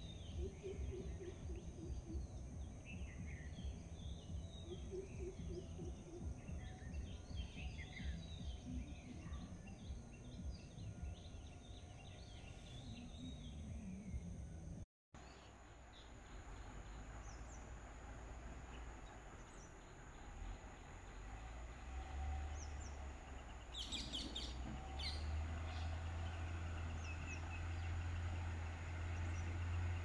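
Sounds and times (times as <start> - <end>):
steady low rumble: 0.0 - 14.8
birds chirping: 0.0 - 17.8, 18.7 - 30.0.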